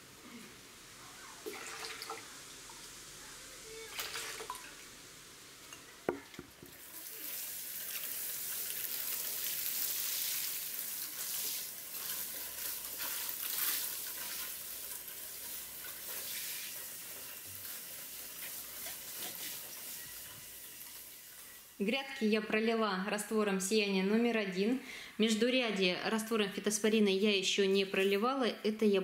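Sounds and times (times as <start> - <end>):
liquid pouring into watering can: 1.4 - 2.2, 3.9 - 4.7
water sprinkling onto soil: 6.7 - 21.5.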